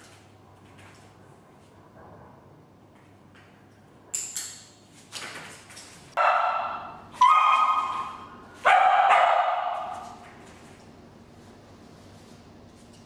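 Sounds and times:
dog barking with echo: 6.2s - 10.2s.

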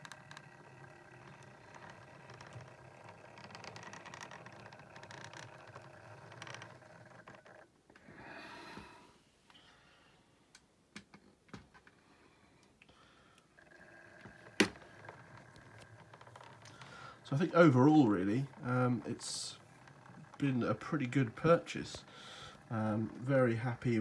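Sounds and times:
model train motor whirring: 0.0s - 7.7s, 13.6s - 24.0s.

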